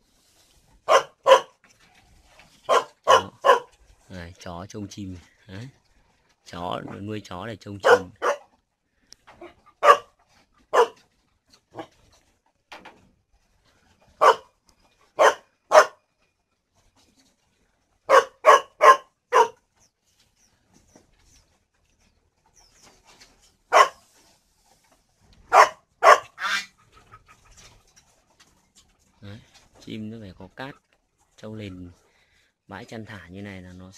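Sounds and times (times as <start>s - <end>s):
dog barking: 0.9s - 1.6s, 2.6s - 3.7s, 7.8s - 8.5s, 9.8s - 10.1s, 10.7s - 11.0s, 14.2s - 14.5s, 15.2s - 16.0s, 18.1s - 19.6s, 23.7s - 24.1s, 25.5s - 26.7s.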